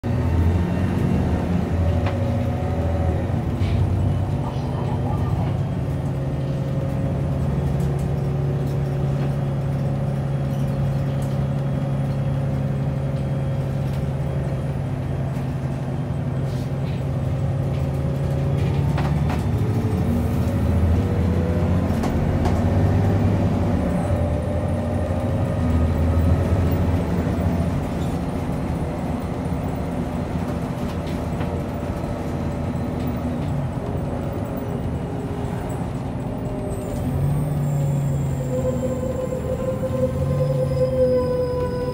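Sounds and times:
bus engine running: 0.0s - 41.9s
road noise: 0.0s - 41.9s
engine whine sliding up and down: 35.1s - 41.9s.

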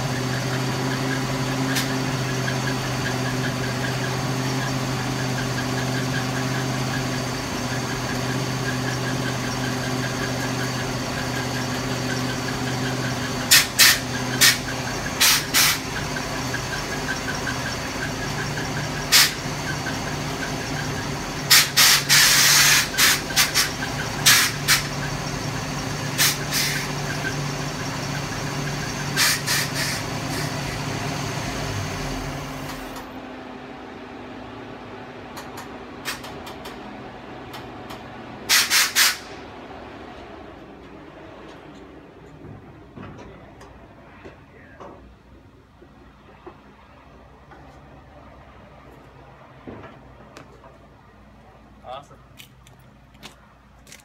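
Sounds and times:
engine idling: 0.0s - 54.0s
air hiss bursts: 13.5s - 14.6s, 15.2s - 15.8s, 19.1s - 19.4s, 21.5s - 24.9s, 26.2s - 26.9s, 29.2s - 30.6s, 38.5s - 39.4s.

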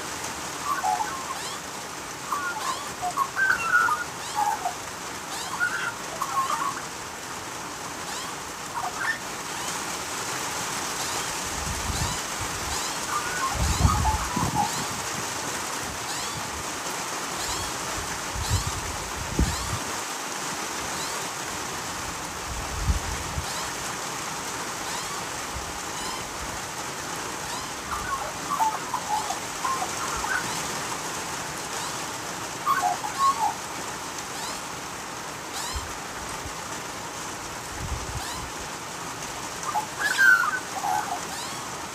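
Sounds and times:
falling rain hiss: 0.0s - 41.9s
magpies warbling: 0.6s - 7.0s, 8.0s - 9.8s, 11.0s - 15.1s, 16.1s - 16.5s, 17.4s - 17.8s, 24.8s - 25.2s, 27.4s - 30.9s, 31.6s - 34.7s, 35.5s - 35.9s, 38.2s - 38.6s, 39.6s - 41.8s.

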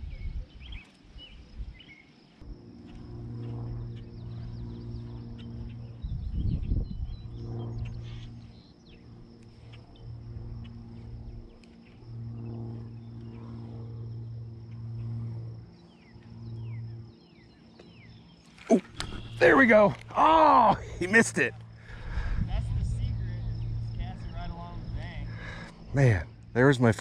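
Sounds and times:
low rumble of noise: 0.0s - 1.8s, 2.4s - 27.0s.

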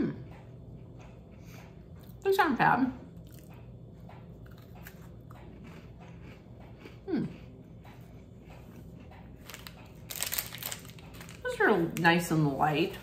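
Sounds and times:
person chewing crunchy cookie: 3.2s - 11.6s.

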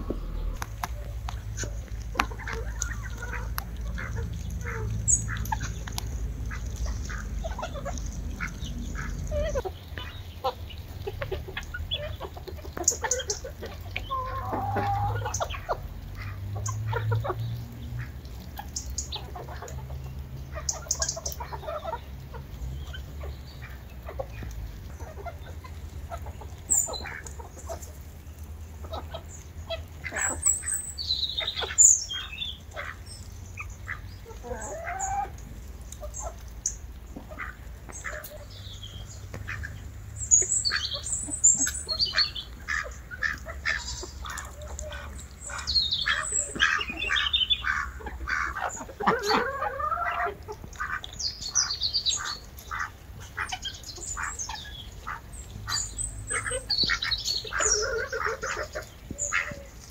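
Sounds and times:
low rumble: 0.0s - 9.6s
chickens clucking: 0.0s - 59.9s
high chick peeps: 20.6s - 59.9s.

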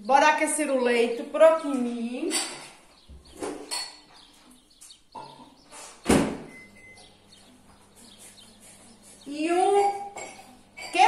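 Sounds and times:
loud thunk: 6.0s - 6.5s.

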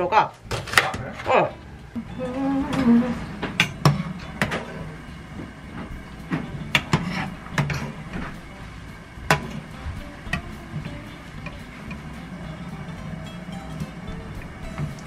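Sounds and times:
broth boiling in a saucepan: 1.6s - 15.0s
ladle knocking and scraping pot: 6.3s - 8.3s.

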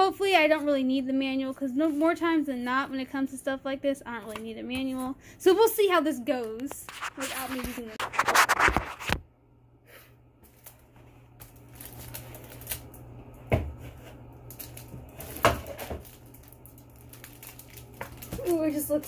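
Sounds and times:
plastic wrap rustling and crinkling: 1.4s - 3.0s, 6.6s - 9.2s, 10.4s - 19.0s
handling noise on microphone: 6.6s - 9.2s.

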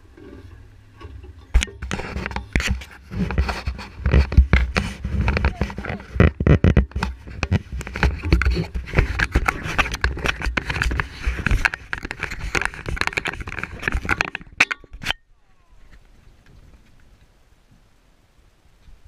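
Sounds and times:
sleeve rubbing against microphone: 1.8s - 14.4s.

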